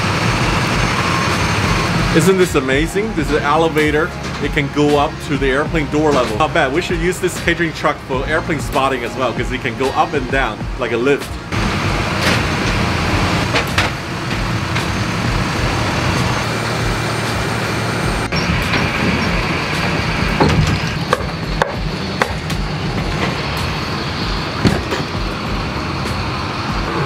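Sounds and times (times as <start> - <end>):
truck engine droning: 0.0 - 27.0
sharp knocks and clunks: 19.8 - 23.4, 24.6 - 25.4.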